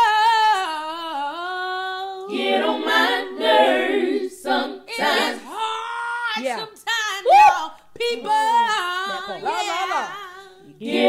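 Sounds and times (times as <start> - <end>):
woman singing a cappella: 0.0 - 2.4, 4.9 - 11.0
layered voices singing: 0.0 - 6.0, 8.0 - 11.0.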